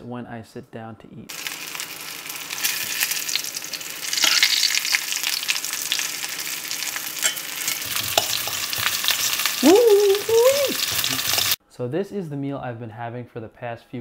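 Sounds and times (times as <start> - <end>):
cutlet sizzling in oil: 1.3 - 11.6.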